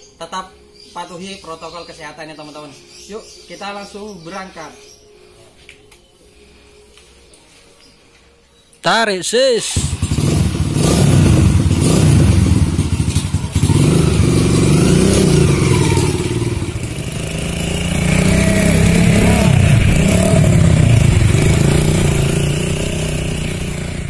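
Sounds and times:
motorcycle engine revving: 9.7 - 24.0.

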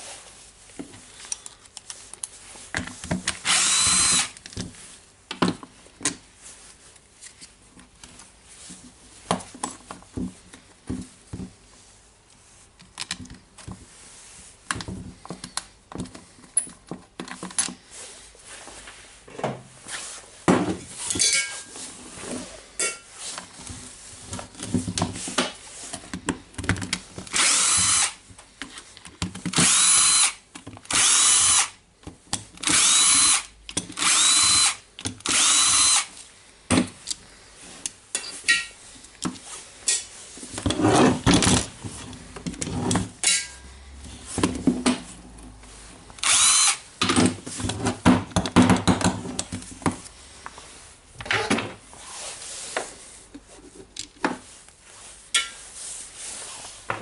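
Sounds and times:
cordless drill motor bursts: 3.4 - 4.4, 27.3 - 28.2, 29.5 - 31.8, 32.6 - 36.1, 46.2 - 46.8.

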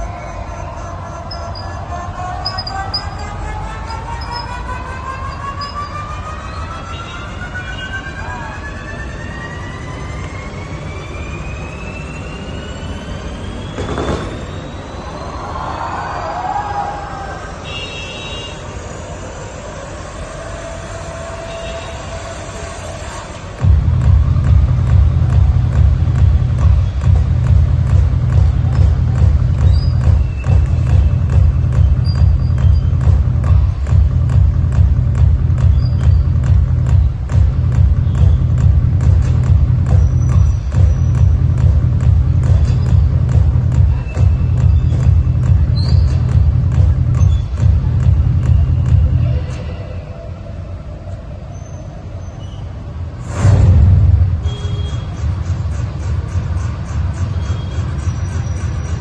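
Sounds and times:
music with heavy bass beat: 0.0 - 8.7, 18.8 - 49.9, 53.1 - 59.0
firework whistle rising: 9.4 - 16.6
firework bang: 13.7 - 15.2
steady low rumble: 23.4 - 51.3, 53.1 - 57.8.

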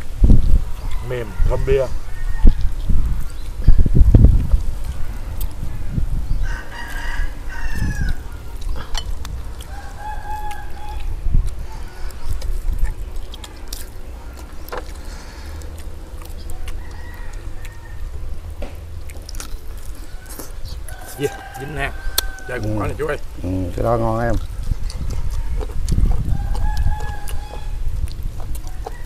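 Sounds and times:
rooster crowing: 0.8 - 2.9, 5.2 - 8.4, 9.6 - 12.1, 16.4 - 18.4, 20.0 - 23.2, 25.1 - 27.8, 28.6 - 29.0
chicken clucking: 24.3 - 29.0.

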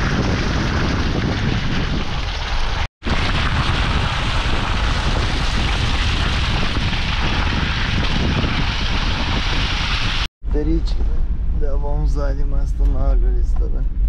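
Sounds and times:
car engine and road noise: 10.4 - 14.0.

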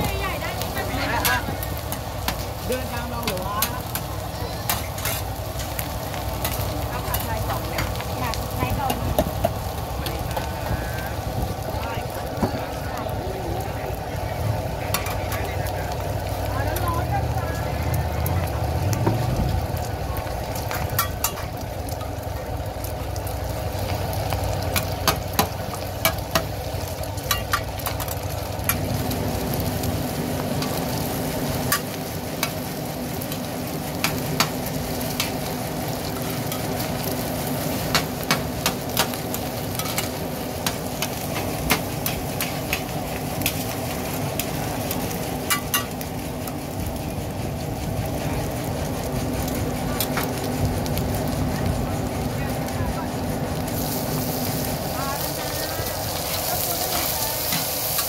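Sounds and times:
omelette sizzling in oil: 0.0 - 58.0.

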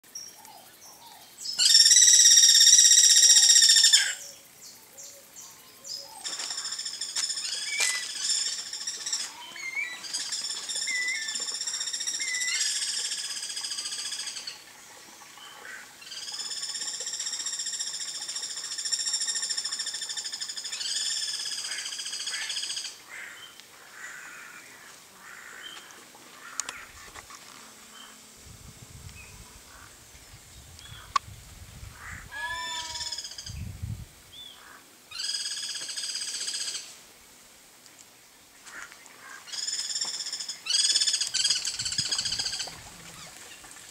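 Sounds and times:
harsh buzzing bird calls: 6.2 - 14.6, 15.4 - 28.3, 29.1 - 31.2, 32.0 - 33.7, 34.3 - 36.9, 38.6 - 43.4.

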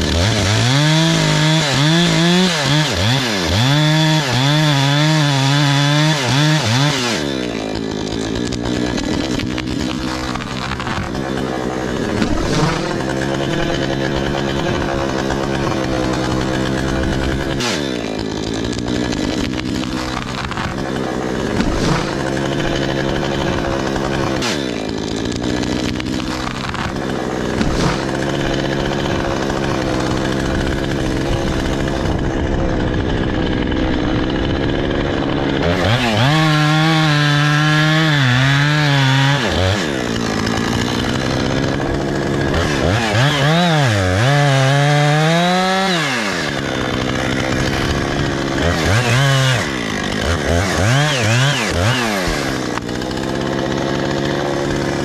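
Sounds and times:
chainsaw running and revving: 0.0 - 55.0.

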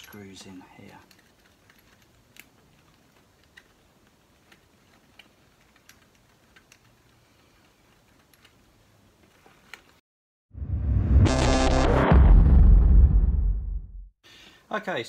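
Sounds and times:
light clicks and taps of fittings: 0.0 - 3.8
loud music: 11.0 - 13.4.

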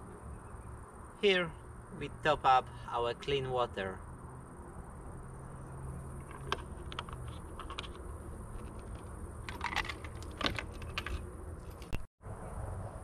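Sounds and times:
plastic clicks and rattles: 6.2 - 11.2.

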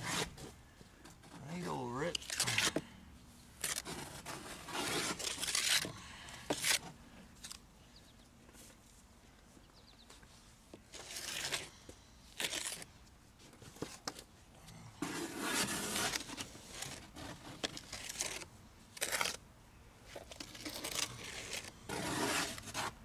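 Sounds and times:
trowel scraping wet cement: 3.6 - 5.9, 15.0 - 18.4, 20.4 - 23.0.

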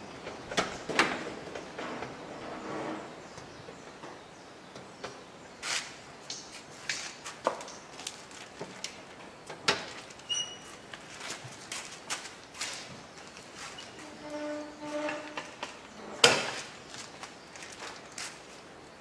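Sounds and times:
rubbing on metal: 13.6 - 15.4.

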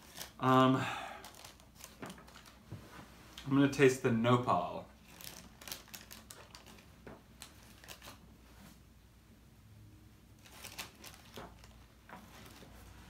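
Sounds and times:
faint paper rustling: 0.0 - 0.5, 1.2 - 3.7, 5.0 - 8.8, 10.4 - 13.0.

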